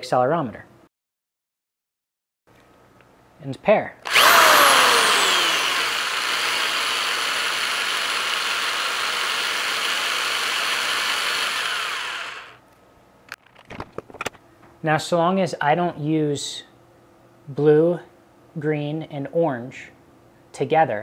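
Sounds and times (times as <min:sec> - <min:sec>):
cordless drill running: 0:04.0 - 0:12.6.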